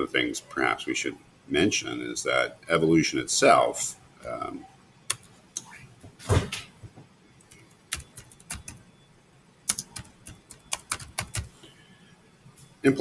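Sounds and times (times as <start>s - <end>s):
computer keyboard typing: 7.4s - 8.8s, 9.7s - 11.5s.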